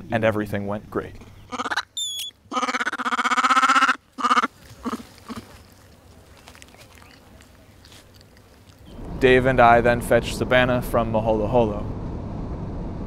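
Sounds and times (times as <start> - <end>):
monkey chirping and crying: 1.4 - 5.8.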